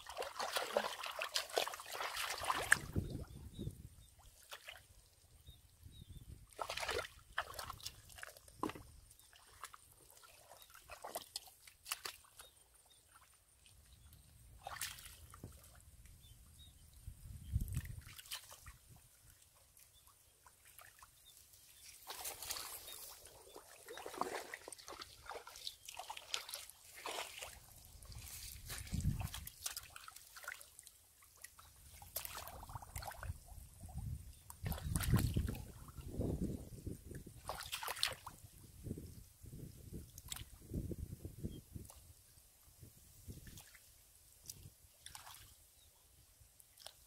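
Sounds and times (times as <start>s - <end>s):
bare feet squelching in mud: 0.0s - 3.0s, 6.6s - 12.5s, 14.6s - 15.4s, 21.4s - 30.7s, 37.4s - 38.4s
small splashes: 0.0s - 3.4s, 4.1s - 5.2s, 6.5s - 16.7s, 17.6s - 33.5s, 34.4s - 36.0s, 37.3s - 38.5s, 40.0s - 40.6s, 43.3s - 45.6s, 46.6s - 47.0s.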